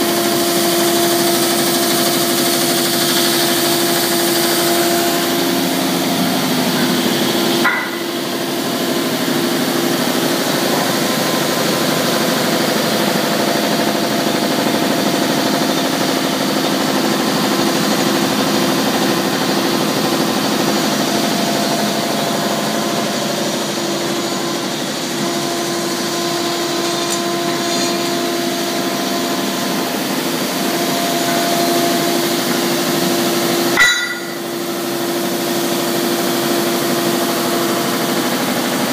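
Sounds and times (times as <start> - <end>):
deburring machine humming: 0.0 - 38.9.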